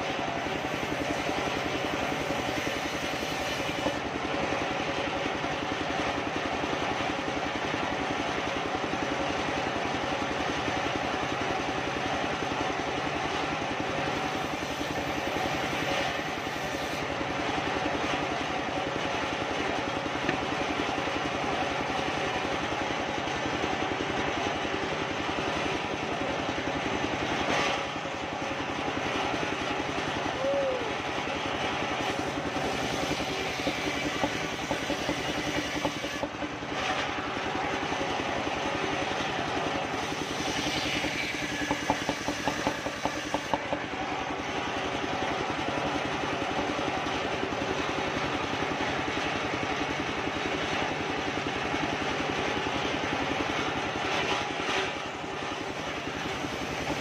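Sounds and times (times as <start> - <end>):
circular saw cutting wood: 0.0 - 4.1, 14.1 - 17.2, 31.8 - 37.3, 39.8 - 44.0, 55.6 - 57.0.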